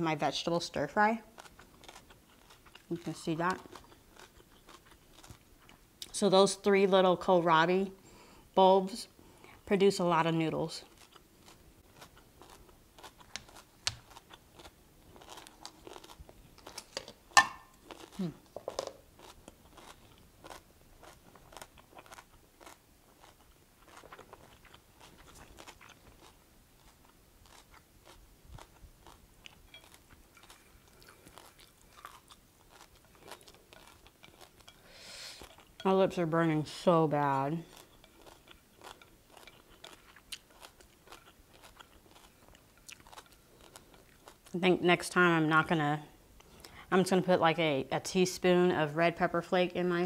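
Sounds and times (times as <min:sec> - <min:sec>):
person chewing crunchy food: 0:01.2 - 0:06.2, 0:10.8 - 0:35.9, 0:36.7 - 0:44.6.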